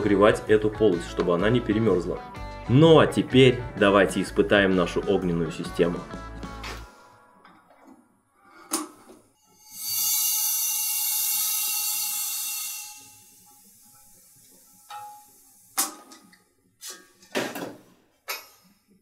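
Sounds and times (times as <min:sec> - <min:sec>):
gas hissing through valve: 0:09.4 - 0:17.2.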